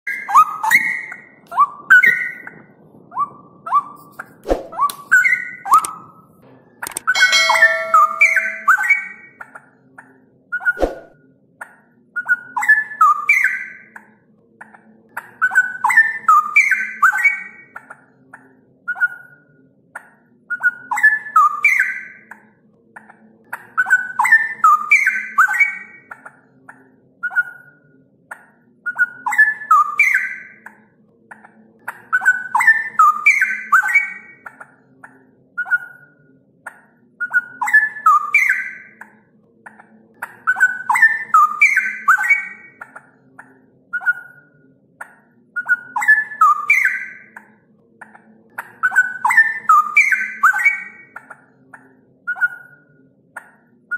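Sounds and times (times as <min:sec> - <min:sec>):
bird singing whistled notes: 0:00.1 - 0:04.0, 0:04.7 - 0:06.1, 0:07.0 - 0:09.4, 0:12.2 - 0:13.9, 0:20.6 - 0:22.2, 0:23.8 - 0:26.2, 0:28.9 - 0:30.6, 0:37.2 - 0:39.0, 0:40.5 - 0:42.8, 0:45.6 - 0:47.4, 0:48.8 - 0:51.1.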